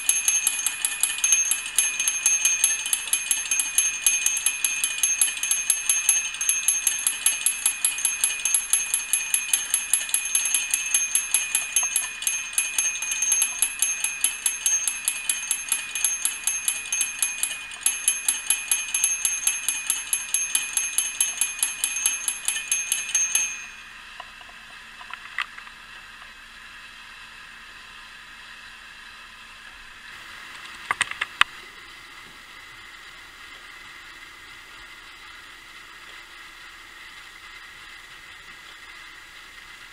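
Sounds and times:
warning bell ringing rapidly: 0:00.0 - 0:24.2.

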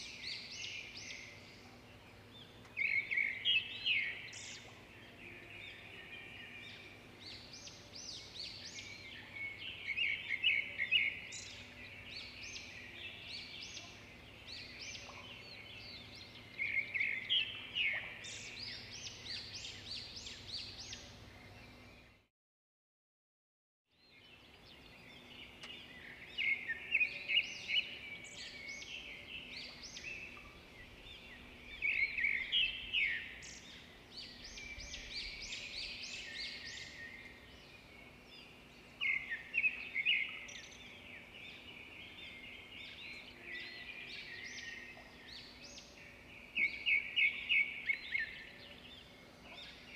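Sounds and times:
small birds chirping: 0:24.0 - 0:49.9.

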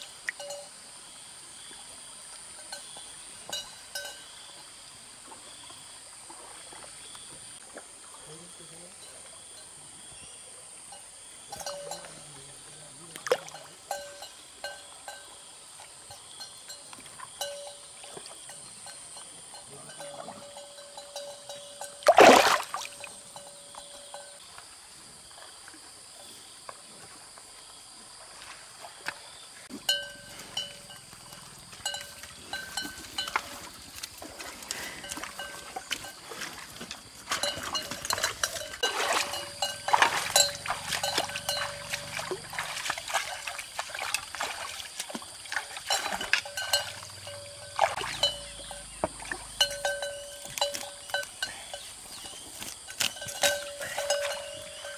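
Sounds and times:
water splashing while wading: 0:22.0 - 0:23.1, 0:32.0 - 0:48.4, 0:49.0 - 0:49.6.

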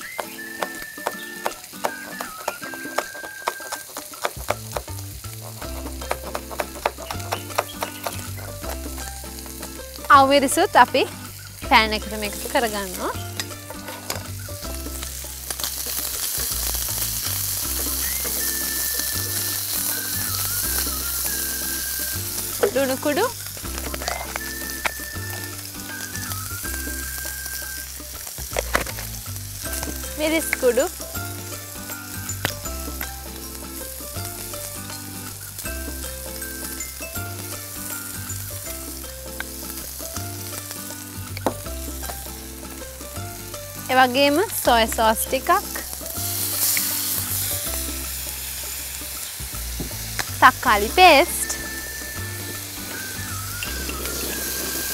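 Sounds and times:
food sizzling in a pan: 0:00.0 - 0:54.9
background music with bass line: 0:04.4 - 0:54.9
spatula scraping a pan: 0:13.6 - 0:14.2, 0:52.9 - 0:54.9.

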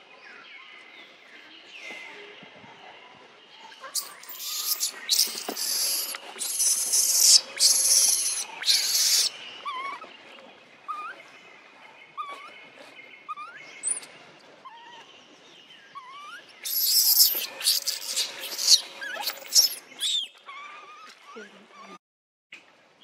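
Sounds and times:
baby monkey screeching: 0:03.9 - 0:10.0, 0:16.0 - 0:21.4
baby monkey whimpering: 0:04.0 - 0:10.1, 0:16.0 - 0:22.0.

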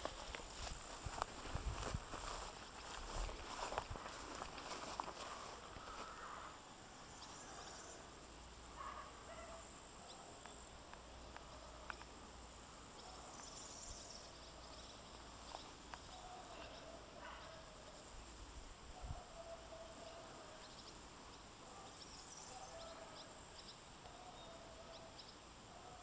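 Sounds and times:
faint steady hiss: 0:00.0 - 0:26.0
faint chirps: 0:05.2 - 0:08.2.

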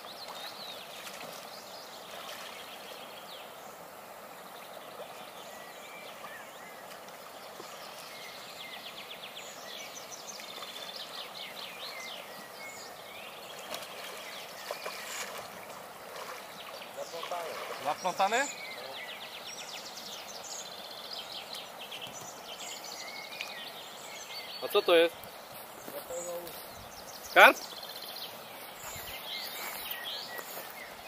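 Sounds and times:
songbirds chirping and trilling: 0:00.0 - 0:31.0.

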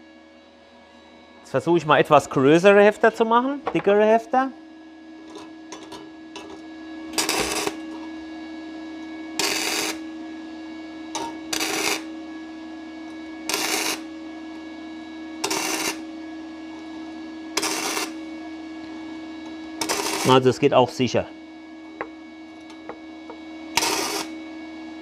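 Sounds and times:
welder hum: 0:05.2 - 0:10.3, 0:11.0 - 0:21.2, 0:21.8 - 0:24.4
welding arc crackle: 0:07.2 - 0:07.8, 0:09.4 - 0:10.0, 0:11.6 - 0:12.1, 0:13.5 - 0:14.0, 0:15.4 - 0:16.0, 0:17.6 - 0:18.2, 0:19.8 - 0:20.4, 0:23.8 - 0:24.3.

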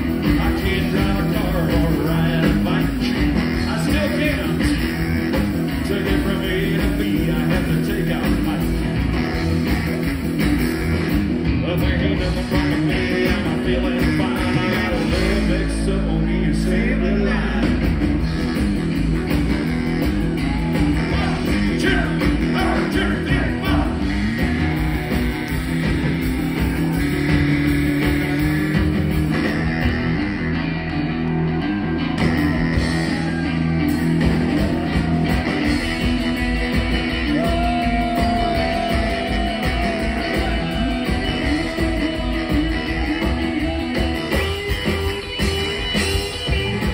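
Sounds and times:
lead vocal singing: 0:00.0 - 0:05.0, 0:05.7 - 0:09.2, 0:11.5 - 0:17.9, 0:21.0 - 0:24.3, 0:37.2 - 0:44.1
live rockabilly band: 0:00.0 - 0:46.9
saxophone: 0:00.0 - 0:46.9.

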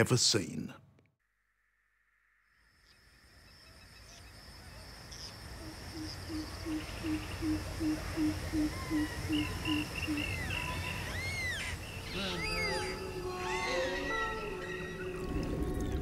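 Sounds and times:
high insect drone: 0:02.4 - 0:15.7
birds chirping: 0:05.1 - 0:15.2
bird hooting: 0:05.6 - 0:14.8.

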